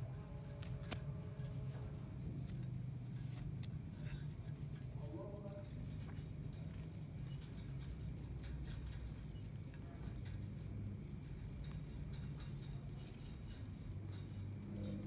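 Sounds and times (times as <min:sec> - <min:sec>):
cricket chirping: 0:05.3 - 0:15.0.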